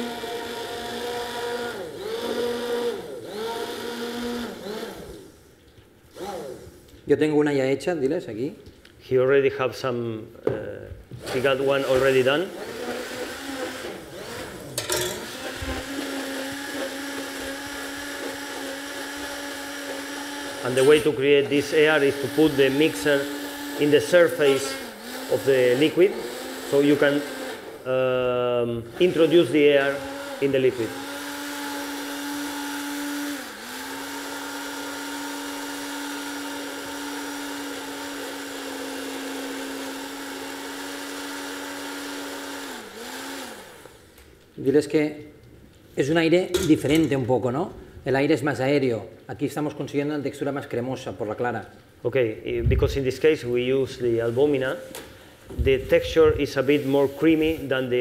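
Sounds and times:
immersion blender humming: 0:00.0 - 0:05.5, 0:06.1 - 0:07.0, 0:11.2 - 0:44.1.

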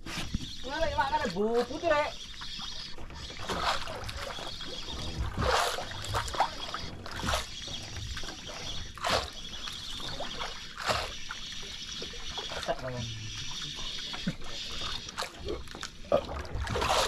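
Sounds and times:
water lapping against hull: 0:00.0 - 0:17.0.

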